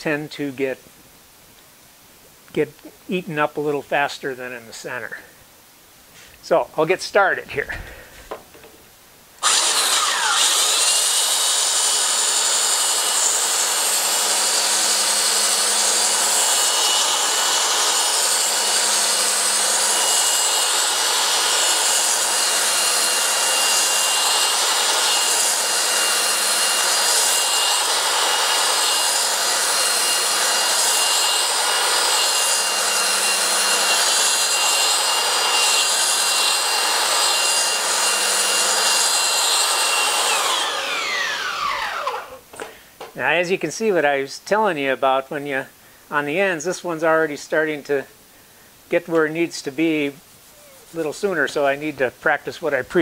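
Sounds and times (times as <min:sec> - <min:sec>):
belt sander grinding wood: 0:09.4 - 0:42.7.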